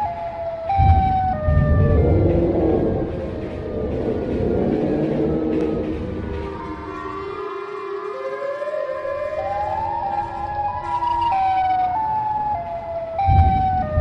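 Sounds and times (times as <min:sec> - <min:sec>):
siren wail: 0:00.0 - 0:14.0
low rumble: 0:00.7 - 0:07.4, 0:13.2 - 0:14.0.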